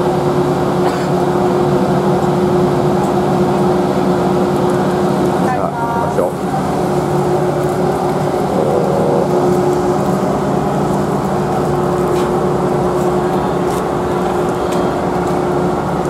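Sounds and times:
ferry engines droning: 0.0 - 16.0
held tone: 8.4 - 9.7.

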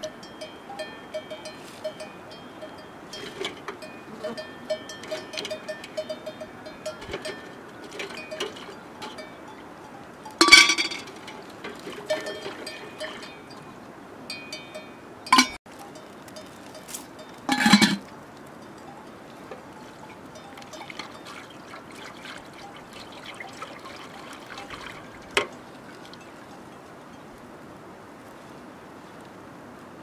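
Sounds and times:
metal bowls clinking: 0.0 - 26.7
liquid trickling into metal pot: 6.9 - 9.2, 10.4 - 13.6, 20.4 - 26.5.

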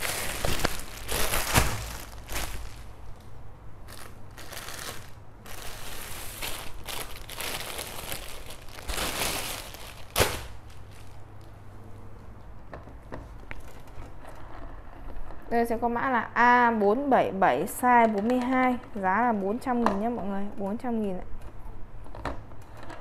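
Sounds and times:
plastic bags crinkling: 0.0 - 11.5
sharp plastic crackle: 0.0 - 11.6.

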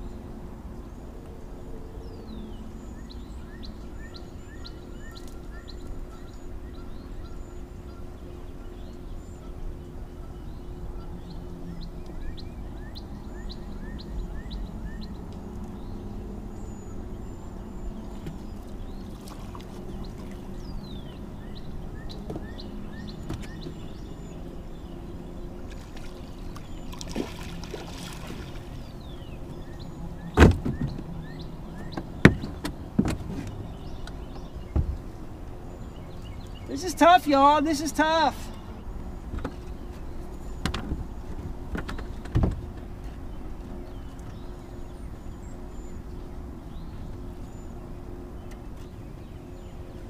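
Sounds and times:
steady low hum: 0.0 - 50.0
knocks against boat hull: 30.4 - 31.0, 31.9 - 33.5.

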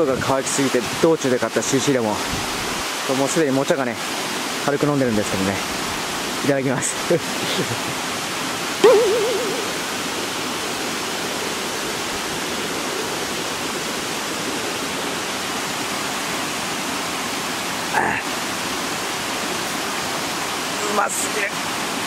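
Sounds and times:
flowing water rushing: 0.0 - 22.0
short rising tone: 8.8 - 9.9.

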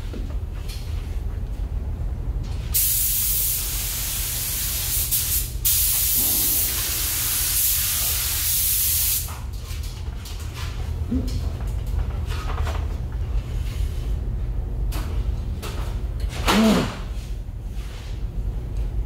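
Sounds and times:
ventilation hum: 0.0 - 19.0
paint spray gun hissing: 2.8 - 9.3.

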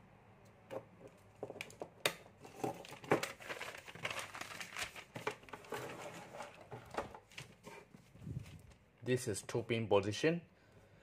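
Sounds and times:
paper rustling and crinkling: 2.5 - 8.9.

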